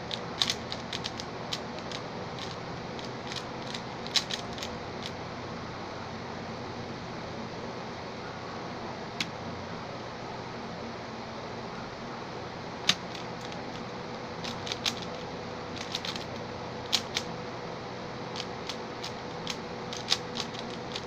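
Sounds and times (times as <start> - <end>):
speed cube plastic clicks: 0.1 - 5.1, 12.9 - 15.2, 15.8 - 17.3, 18.4 - 21.0.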